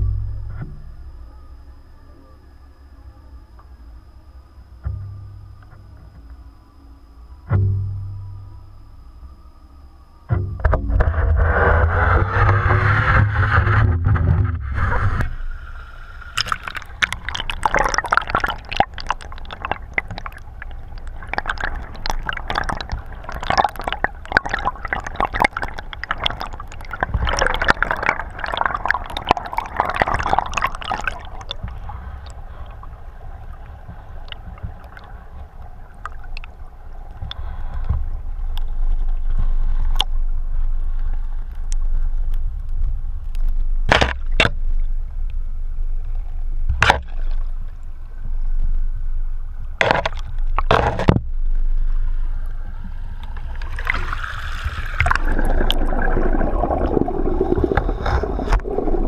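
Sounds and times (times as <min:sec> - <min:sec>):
low underwater rumble: 0:00.0 - 0:59.0
underwater water sloshing: 0:14.4 - 0:59.0
clicks and bubbling over gravel: 0:16.3 - 0:40.1, 0:53.2 - 0:59.0.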